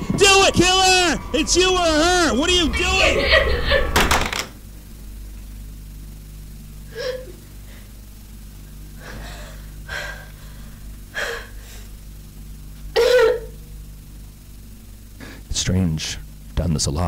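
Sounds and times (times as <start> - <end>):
steady low hum: 0.0 - 17.0
woman gasping and sobbing: 6.9 - 7.4.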